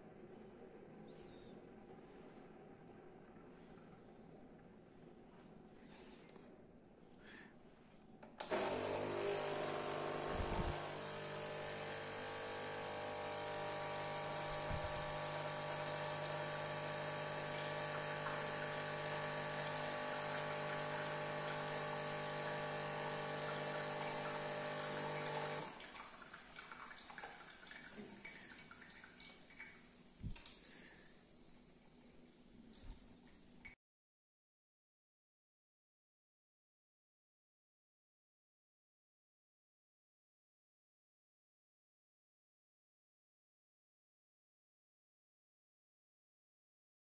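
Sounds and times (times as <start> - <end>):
coffee machine pump humming: 8.4 - 26.8
quiet dripping: 23.4 - 33.8.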